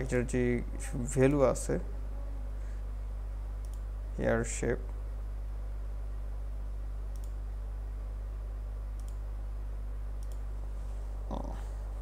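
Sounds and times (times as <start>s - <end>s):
low electrical hum: 0.0s - 12.0s
computer mouse clicking: 3.6s - 3.9s, 7.1s - 7.4s, 9.0s - 9.2s, 10.2s - 10.5s.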